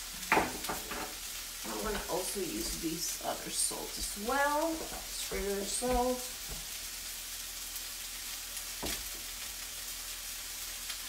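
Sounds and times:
food sizzling in a pan: 0.0s - 11.0s.

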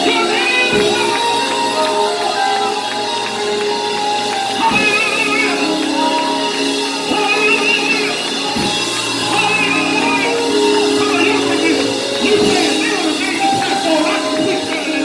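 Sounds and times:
sustained keyboard chords: 0.0s - 15.0s
person singing with vibrato: 4.5s - 15.0s.

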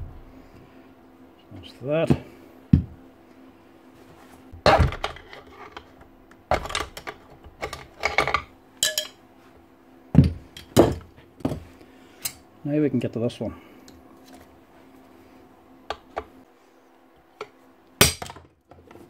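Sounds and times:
metal parts clinking and knocking: 6.5s - 9.2s.

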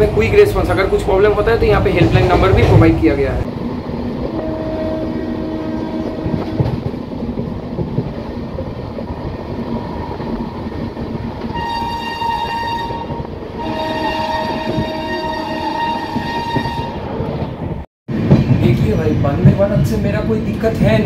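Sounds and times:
train wheels rumbling on track: 0.0s - 21.0s
locomotive horn blast: 4.3s - 6.8s, 11.5s - 17.1s.

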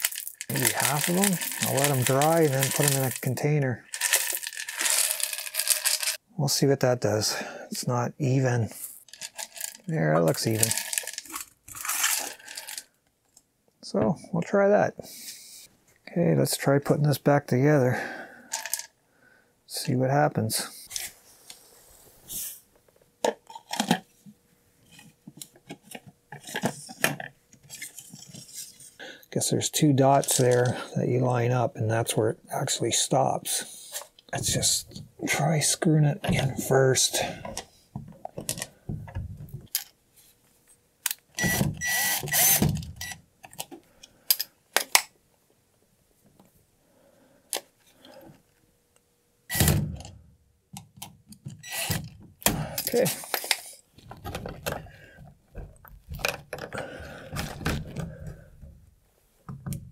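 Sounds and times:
plastic parts clicking and knocking: 0.0s - 6.2s, 9.0s - 13.4s, 18.5s - 18.9s, 23.2s - 24.1s, 25.0s - 28.8s, 37.4s - 40.0s, 41.0s - 45.1s, 49.5s - 58.8s, 59.4s - 59.9s
plastic rustle: 0.0s - 6.2s, 8.7s - 12.9s
plastic scraping and rubbing: 0.0s - 6.2s.

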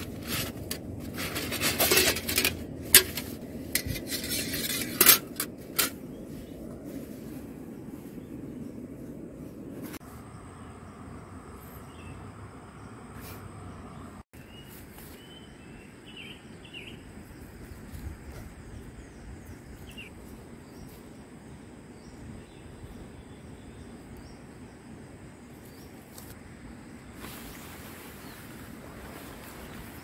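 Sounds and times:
tent fabric rustling: 0.0s - 10.1s, 27.2s - 30.0s
low rumble and hiss: 0.0s - 14.2s
outdoor ambient noise: 0.0s - 30.0s.

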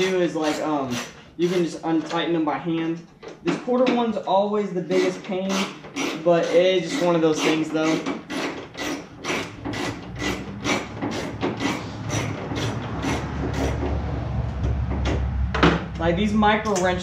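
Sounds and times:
wrench clicking: 5.0s - 13.8s
low rumble: 12.3s - 16.6s.

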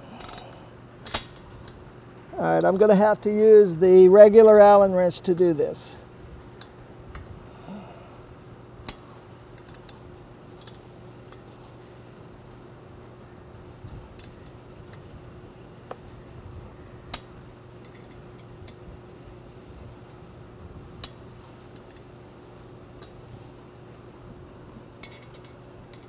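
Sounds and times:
steady low hum: 0.0s - 26.0s
sharp metallic clinks: 0.1s - 3.0s, 8.8s - 9.4s, 17.0s - 18.0s, 21.0s - 21.5s.

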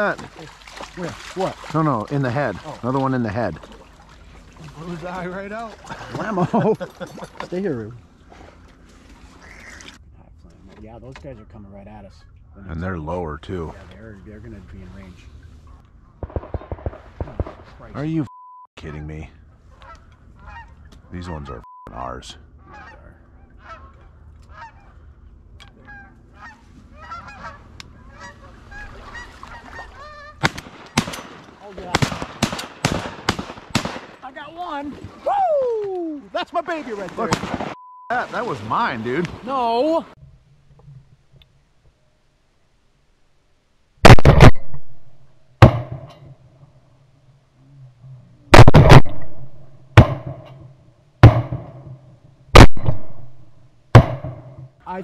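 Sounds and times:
shotgun blasts with echo: 16.2s - 17.8s, 30.4s - 34.2s, 37.3s - 37.8s, 44.0s - 46.1s, 48.6s - 50.5s, 51.2s - 52.0s, 52.6s - 53.4s, 54.0s - 54.7s
geese honking in flight: 18.8s - 21.6s, 22.6s - 30.4s.

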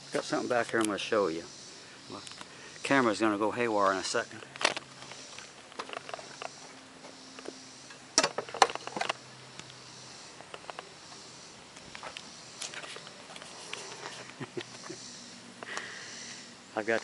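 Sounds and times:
faint steady hum: 0.0s - 17.0s
light ticks: 9.6s - 9.8s.

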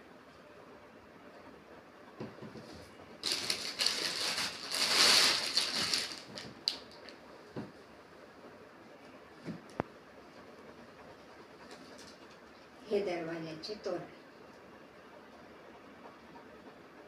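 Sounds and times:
plastic bag crinkling and rustling: 3.2s - 7.2s.

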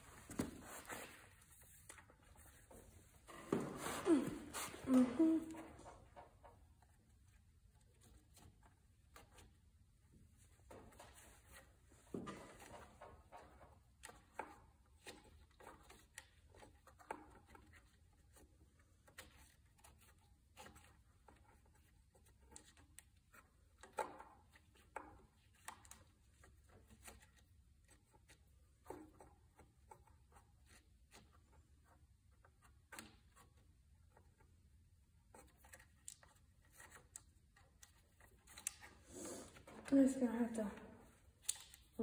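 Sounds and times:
hands handling wiring and hoses: 10.5s - 40.2s, 41.0s - 42.0s.

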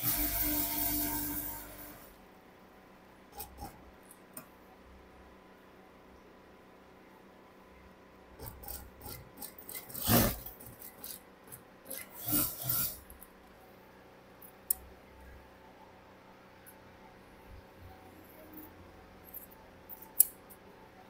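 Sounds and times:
fabric scraping on sewing machine: 0.0s - 2.1s, 8.4s - 11.2s, 11.9s - 13.1s.

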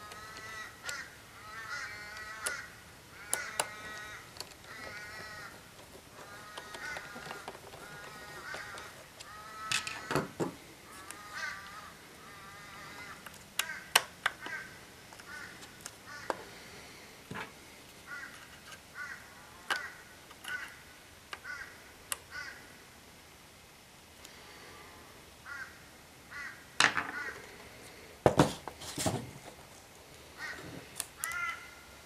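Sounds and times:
harsh bird calls: 0.0s - 17.0s
plastic parts clicking and knocking: 3.2s - 11.2s, 13.2s - 16.5s.

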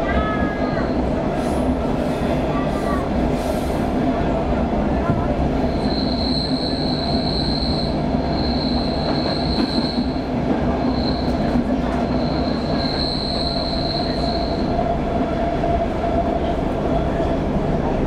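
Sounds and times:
train wheels rumbling on track: 0.0s - 18.0s
high wheel squeal: 5.7s - 14.8s.

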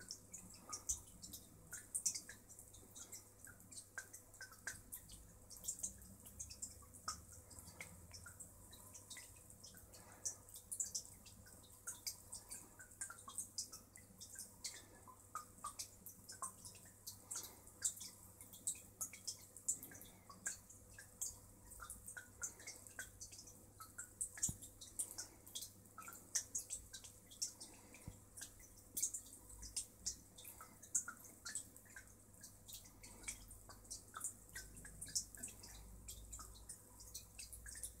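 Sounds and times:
aquarium water dripping and bubbling: 0.0s - 38.0s
faint steady hum: 0.0s - 38.0s.

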